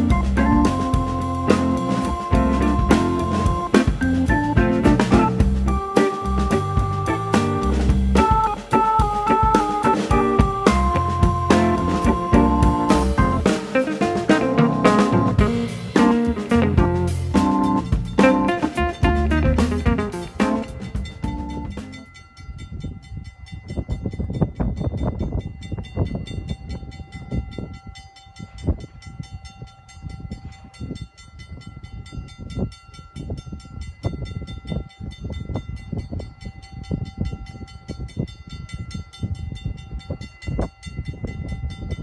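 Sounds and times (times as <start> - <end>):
steady high-pitched tones: 0.0 - 16.4
trolley car rumbling on track: 0.0 - 22.8.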